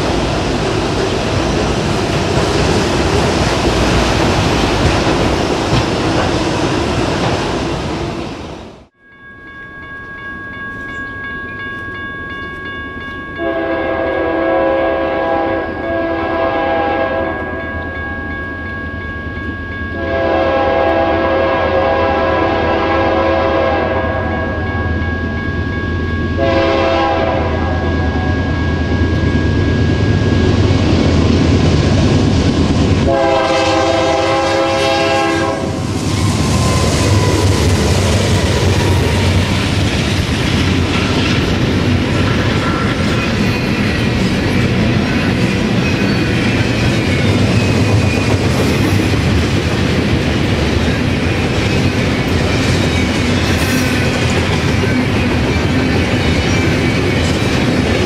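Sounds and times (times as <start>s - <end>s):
train cars rumbling past: 0.0s - 8.9s, 11.2s - 58.0s
locomotive horn blasts: 13.4s - 17.4s, 20.0s - 24.4s, 26.4s - 28.2s, 33.0s - 35.8s.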